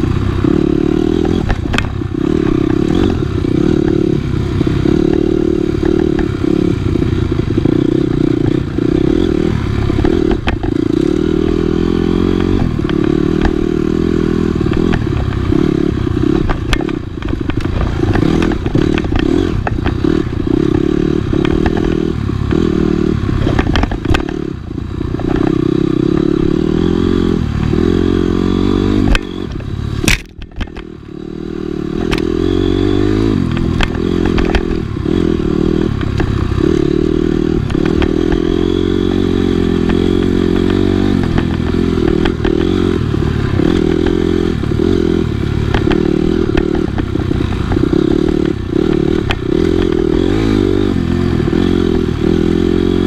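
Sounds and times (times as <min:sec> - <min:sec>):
dirt bike engine revving: 0:00.0 - 0:53.0
sharp crack: 0:30.0 - 0:30.9.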